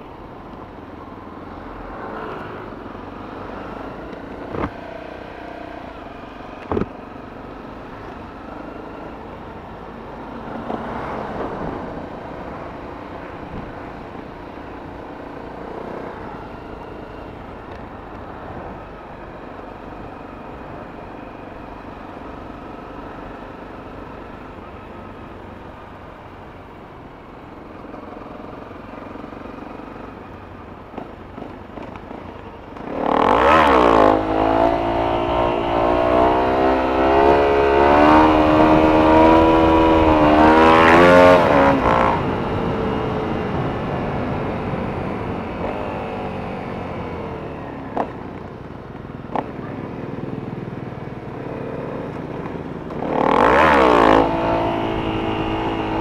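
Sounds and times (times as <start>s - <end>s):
road noise: 0.0s - 56.0s
motorcycle engine revving: 27.9s - 56.0s.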